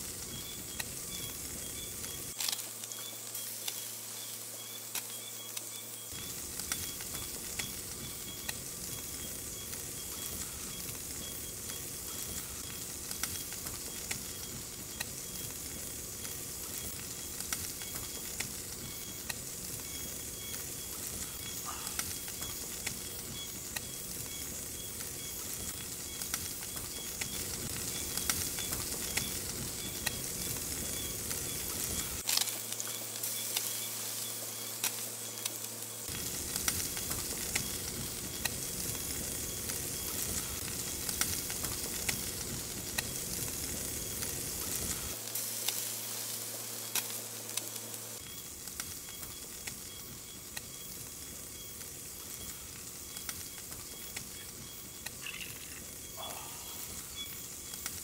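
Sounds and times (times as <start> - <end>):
food sizzling with crackles: 0.0 - 58.0.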